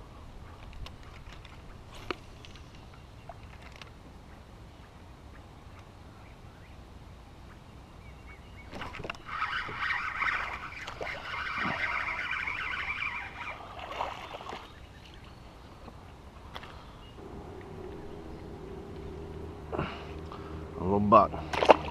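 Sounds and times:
fishing reel reeling: 0:09.0 - 0:13.7.

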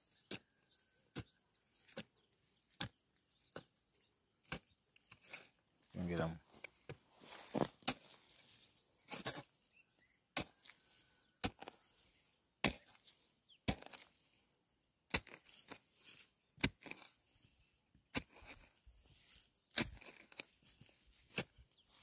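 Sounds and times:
hoe chopping into soil: 0:00.1 - 0:09.7, 0:10.3 - 0:14.5, 0:15.1 - 0:17.4, 0:18.1 - 0:22.0.

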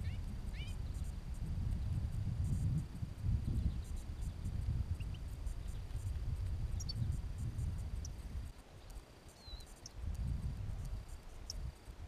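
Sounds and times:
wind buffeting microphone: 0:00.0 - 0:08.6, 0:09.9 - 0:12.0
finches chirping: 0:03.4 - 0:06.0, 0:06.7 - 0:07.2, 0:08.8 - 0:10.0, 0:10.9 - 0:11.6.

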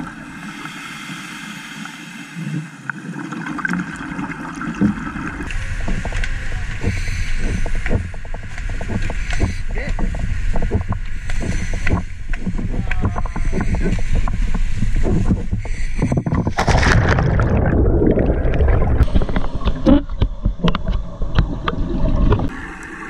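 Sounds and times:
underwater bubbling: 0:00.0 - 0:23.0
water splashing and churning: 0:00.0 - 0:23.0
boat engine running: 0:05.4 - 0:16.6.

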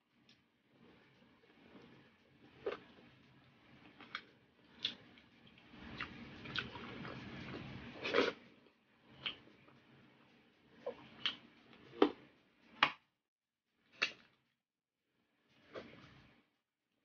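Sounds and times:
person chewing with wet smacks: 0:04.8 - 0:08.4.

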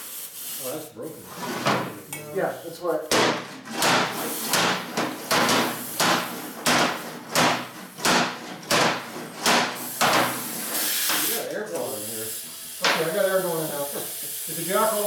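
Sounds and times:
hammer blows ringing: 0:03.1 - 0:10.4.

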